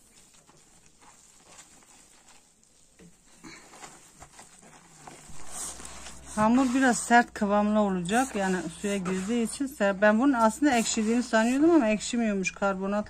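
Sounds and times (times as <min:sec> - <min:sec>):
hands kneading dough: 0:00.0 - 0:12.4.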